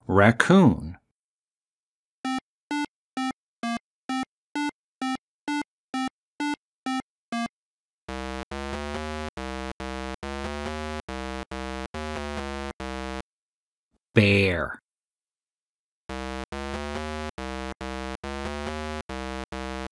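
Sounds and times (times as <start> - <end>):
low buzzy synth notes: 8.1 - 13.2.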